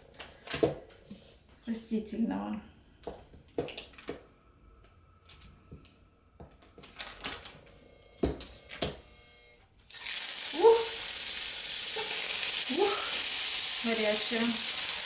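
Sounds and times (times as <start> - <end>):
butter sizzling in a skillet: 9.9 - 15.0.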